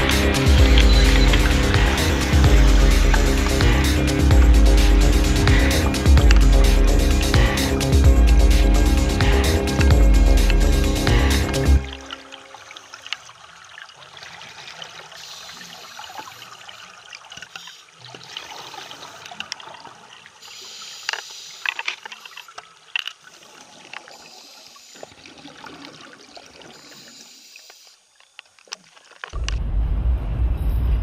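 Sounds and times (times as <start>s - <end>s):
loud low rumble: 0.0s - 11.8s, 29.4s - 31.0s
underwater regulator bubbles: 0.0s - 12.3s.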